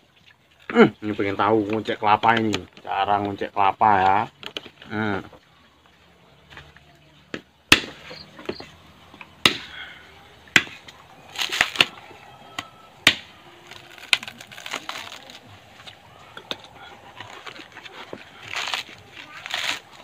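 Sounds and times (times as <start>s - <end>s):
machete chopping coconut husk: 7.3s - 9.8s, 10.4s - 15.5s, 16.3s - 20.0s.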